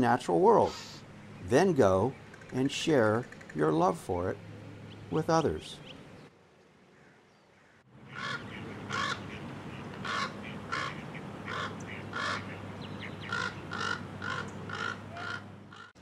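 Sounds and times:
raven cawing: 0:03.2 - 0:03.6, 0:06.9 - 0:16.0.

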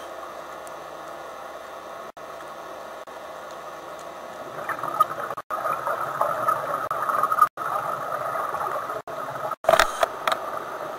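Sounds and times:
crackle: 0:00.0 - 0:10.9
underwater gurgling rush: 0:04.2 - 0:10.9.

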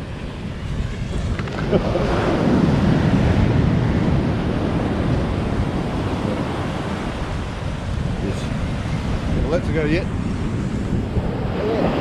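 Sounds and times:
surf washing on beach: 0:00.0 - 0:12.0
wind on microphone: 0:00.0 - 0:12.0.

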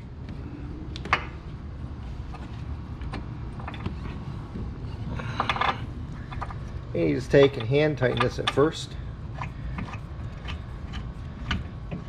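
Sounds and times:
steady low hum: 0:00.0 - 0:12.0
metal tools clicking and tapping: 0:05.2 - 0:12.0.

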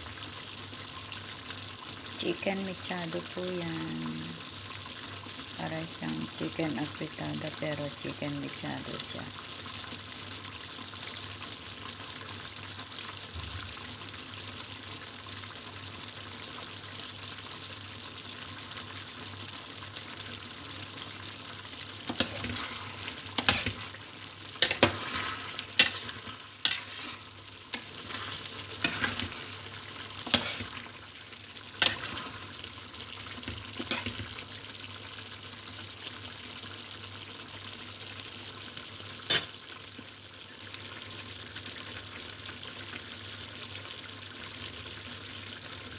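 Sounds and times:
stew simmering and sizzling: 0:00.0 - 0:45.9
metal spoon scraping a pot: 0:22.1 - 0:24.0, 0:24.6 - 0:29.5, 0:30.2 - 0:30.8, 0:31.8 - 0:32.3, 0:33.8 - 0:34.2.

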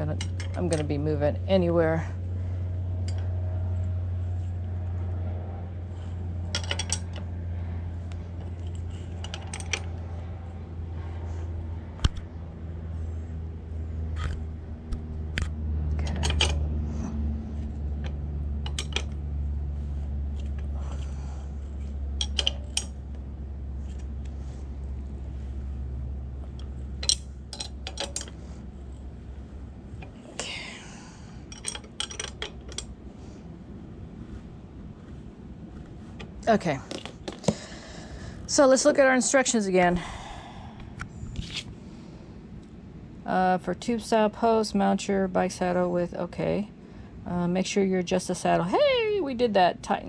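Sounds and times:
steady low hum: 0:00.0 - 0:50.0
wrench clicking on metal nuts: 0:06.5 - 0:07.2, 0:18.6 - 0:19.2, 0:22.2 - 0:23.0, 0:27.0 - 0:28.4, 0:31.5 - 0:32.9.

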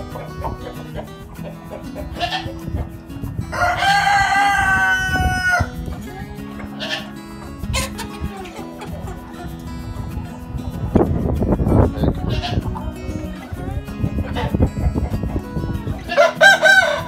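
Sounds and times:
hens clucking: 0:00.0 - 0:11.1, 0:14.1 - 0:17.0
background music: 0:00.0 - 0:17.0
rooster crowing: 0:03.5 - 0:05.7, 0:16.1 - 0:17.0.

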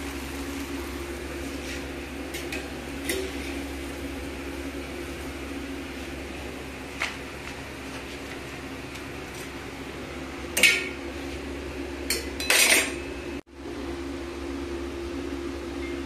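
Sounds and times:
steady fan hum: 0:00.0 - 0:16.0
metal pan and utensils clattering: 0:02.3 - 0:03.7, 0:10.6 - 0:11.0, 0:12.1 - 0:13.0.

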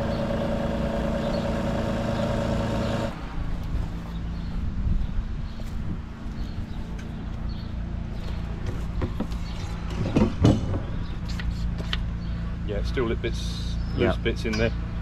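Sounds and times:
pump humming: 0:00.0 - 0:03.2.

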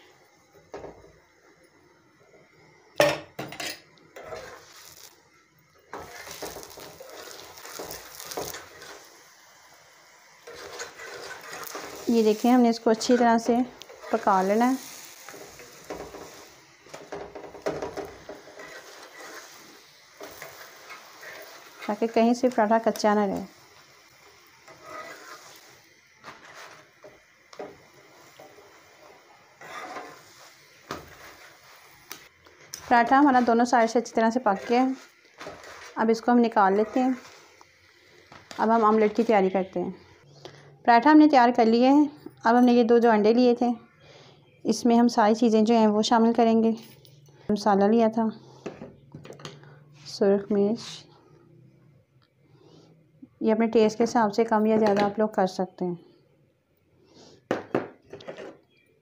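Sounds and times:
flatbread sizzling on griddle: 0:00.0 - 0:40.3
faint frying hiss: 0:00.0 - 0:59.0
metal spatula scraping and tapping: 0:03.4 - 0:04.6, 0:10.4 - 0:12.0, 0:32.7 - 0:36.0.

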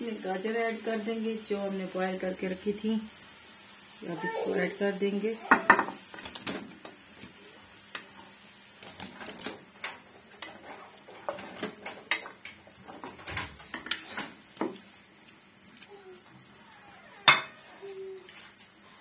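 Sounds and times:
stirring in a pan: 0:05.4 - 0:16.6.

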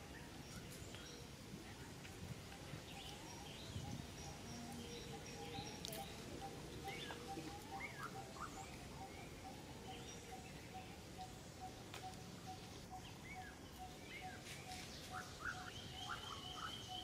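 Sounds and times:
bird piping notes: 0:03.0 - 0:17.0.

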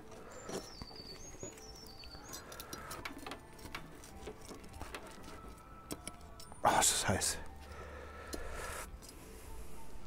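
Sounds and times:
faint bird chirping: 0:00.0 - 0:03.0.

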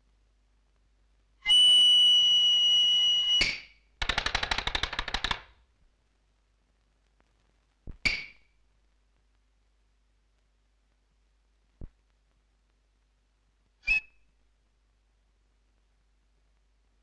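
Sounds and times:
fast rattle of clicks: 0:04.0 - 0:05.6.

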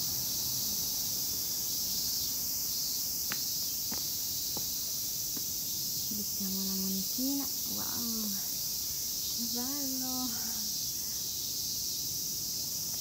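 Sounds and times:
cicadas droning: 0:00.0 - 0:13.0.

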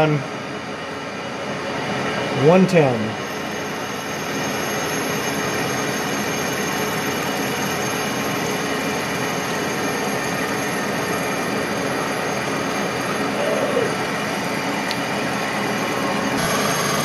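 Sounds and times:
milling machine cutting metal: 0:15.8 - 0:17.0.

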